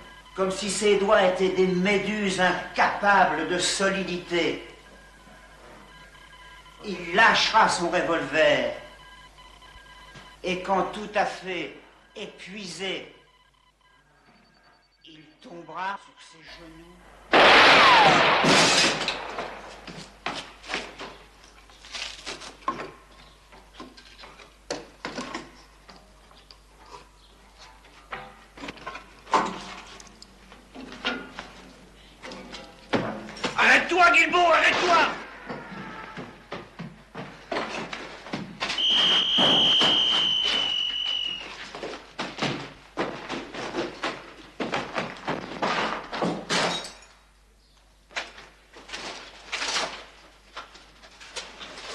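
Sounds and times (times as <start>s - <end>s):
hurried footsteps: 34.9s - 46.4s.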